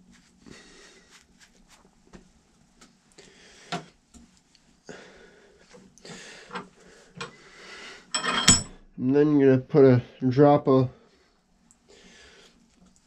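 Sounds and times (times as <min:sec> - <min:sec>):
steel wool scratching metal: 0:08.1 - 0:08.8.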